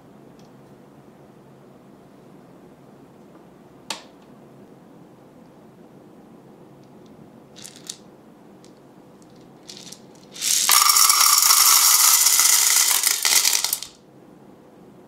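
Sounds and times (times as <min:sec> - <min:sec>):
popcorn kernels rattling: 0:07.6 - 0:08.0, 0:09.2 - 0:14.0.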